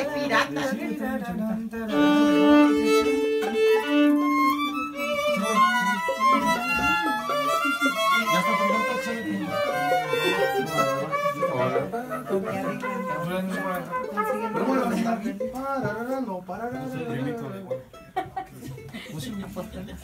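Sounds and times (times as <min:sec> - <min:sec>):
strummed guitars: 0:00.0 - 0:19.0
violins playing melody: 0:01.7 - 0:15.7.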